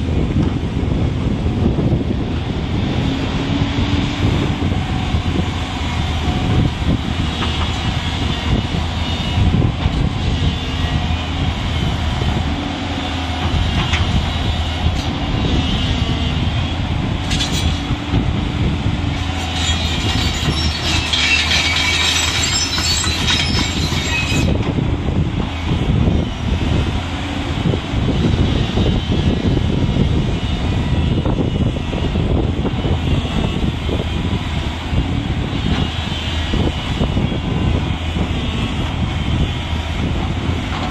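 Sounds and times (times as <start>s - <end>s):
diesel engine droning: 0.0s - 40.9s
steel tracks clattering and squealing: 4.5s - 12.3s, 13.2s - 18.1s, 19.1s - 24.8s, 28.2s - 40.9s.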